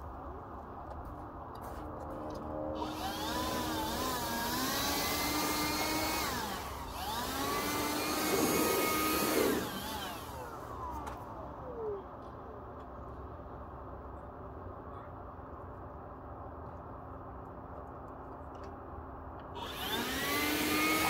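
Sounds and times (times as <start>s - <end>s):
small electric motors whining: 2.8s - 11.9s, 19.6s - 21.0s.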